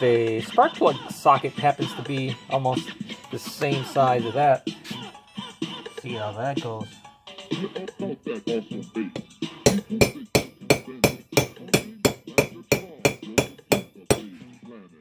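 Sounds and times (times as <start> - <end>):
hammer striking metal socket: 9.7 - 14.3.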